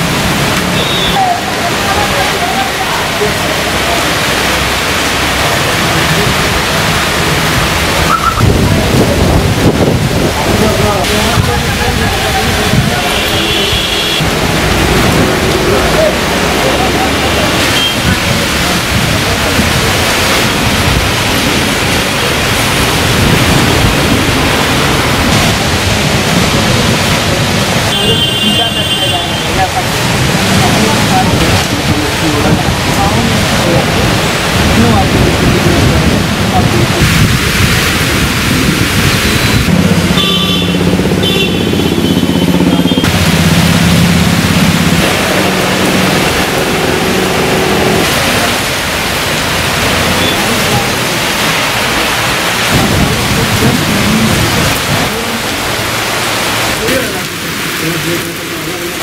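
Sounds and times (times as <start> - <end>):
heavy rain pouring: 0.0 - 59.0
vehicle engine humming: 37.4 - 58.9.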